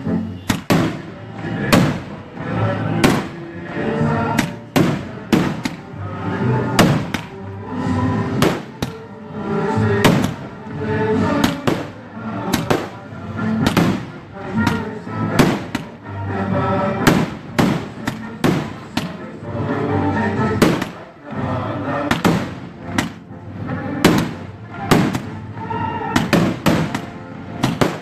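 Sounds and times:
music playing: 0.0 - 28.0
fireworks bursting: 0.4 - 2.2, 2.9 - 3.5, 4.3 - 6.0, 6.7 - 7.4, 8.2 - 9.0, 9.9 - 10.6, 11.2 - 16.0, 17.0 - 19.3, 20.5 - 21.1, 22.0 - 23.2, 24.0 - 28.0.

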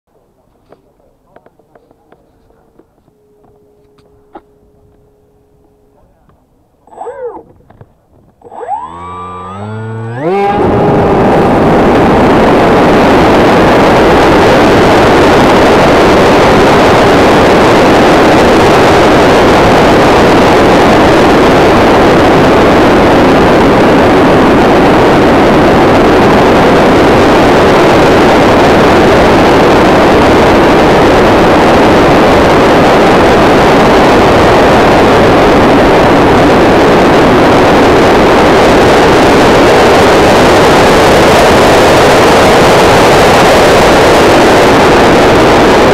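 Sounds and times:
electric motor and propeller drone: 1.4 - 32.0.

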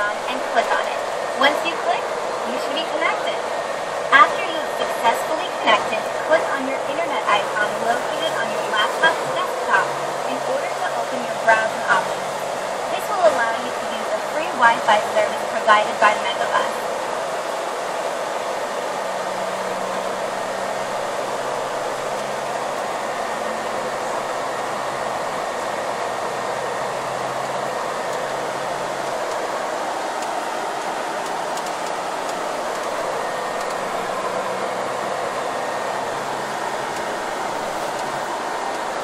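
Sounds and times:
road and wind noise in a bus: 0.0 - 39.0
low engine hum: 18.4 - 39.0.

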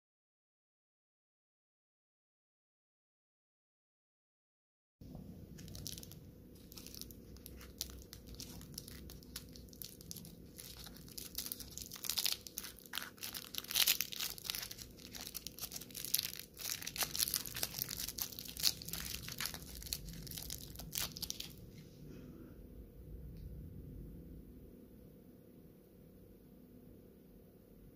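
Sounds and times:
foil wrapper crinkling: 5.6 - 21.6.

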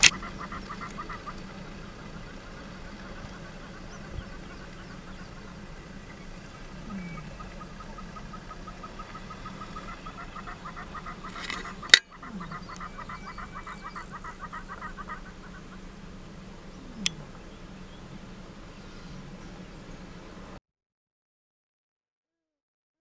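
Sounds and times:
bird calls chattering: 0.0 - 20.2.

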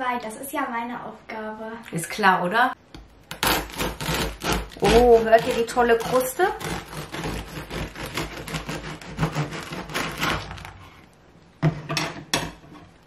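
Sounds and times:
bread knife sawing through crust: 3.4 - 10.8.

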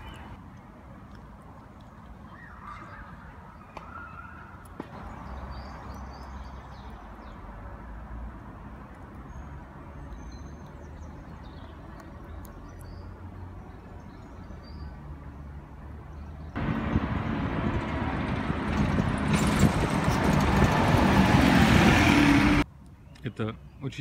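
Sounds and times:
small birds chirping: 0.0 - 7.5, 8.8 - 16.6.

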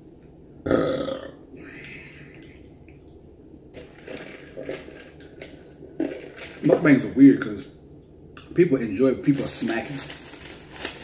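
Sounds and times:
man burping: 0.6 - 1.7.

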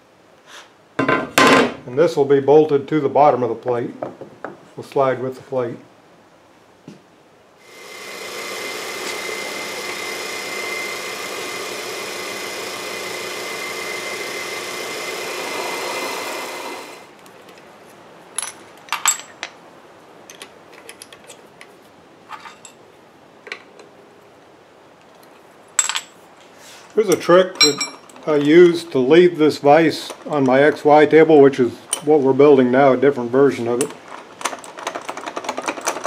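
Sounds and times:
drill press drilling metal: 7.7 - 17.0
metallic clicks and clinks: 27.1 - 28.5.

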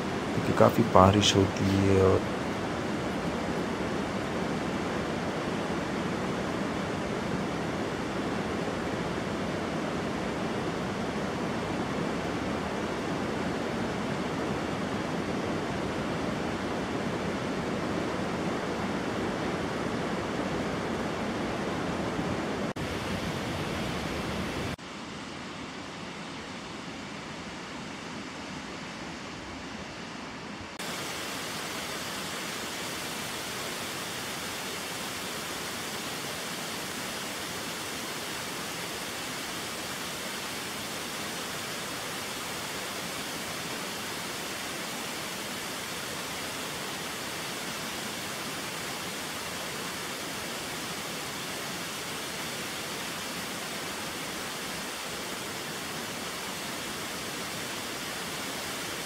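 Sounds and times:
stream cascading over rocks: 0.0 - 3.9, 30.8 - 59.0
fast river rushing: 0.0 - 24.8, 30.7 - 59.0.

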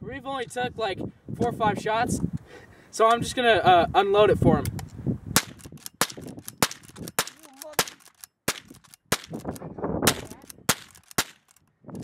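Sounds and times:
rifle shots: 5.4 - 11.5
rifle lever working: 5.5 - 12.0.

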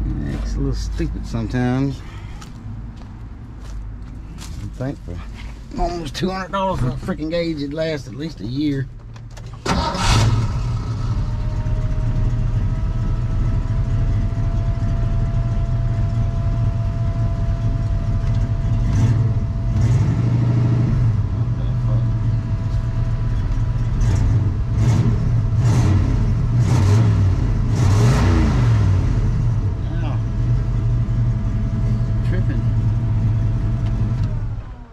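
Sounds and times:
car engine idling with whine: 0.0 - 34.9
engine revving with hiss: 24.0 - 29.3.

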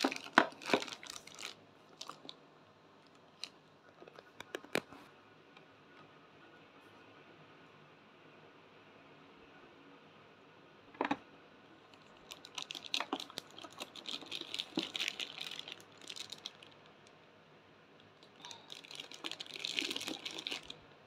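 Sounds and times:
plastic wrap crinkling: 0.0 - 2.4, 3.0 - 4.8, 11.9 - 16.9, 18.3 - 20.8.

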